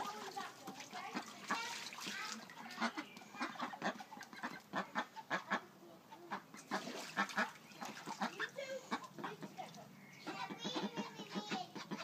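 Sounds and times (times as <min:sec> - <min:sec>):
ducklings peeping quacks: 0:00.7 - 0:01.8, 0:02.5 - 0:12.0.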